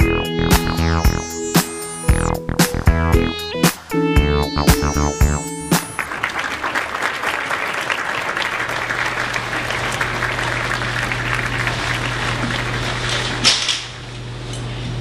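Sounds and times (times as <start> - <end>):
audience applause: 5.5 - 13.4.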